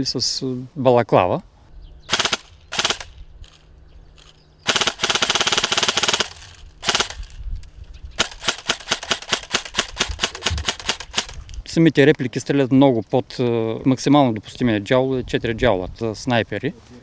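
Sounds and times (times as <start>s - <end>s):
airsoft rifle firing bursts: 2.1s - 3.6s, 4.2s - 7.4s, 8.2s - 11.4s.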